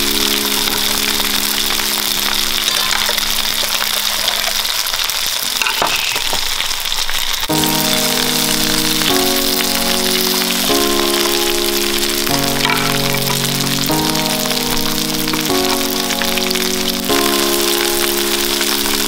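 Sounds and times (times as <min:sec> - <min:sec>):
background music held chords: 0:00.0 - 0:03.6, 0:07.5 - 0:19.0
oil sizzling and crackling: 0:00.0 - 0:19.0.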